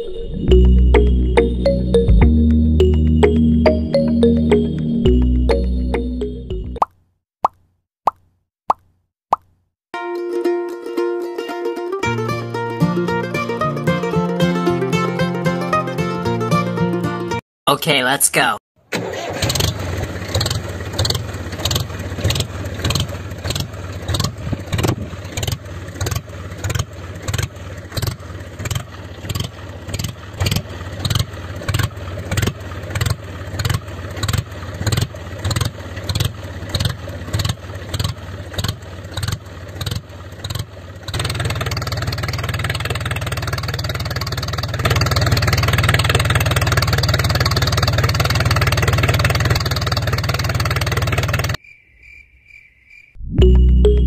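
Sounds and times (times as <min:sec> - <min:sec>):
small tractor engine running: 0:18.9 - 0:51.6.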